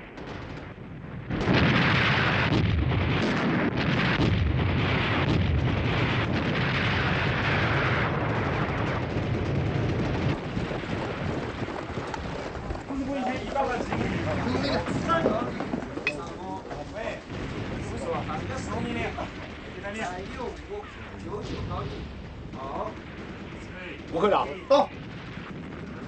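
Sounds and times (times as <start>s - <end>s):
explosions and artillery fire: 0.0s - 26.0s
heavy low rumble: 4.2s - 26.0s.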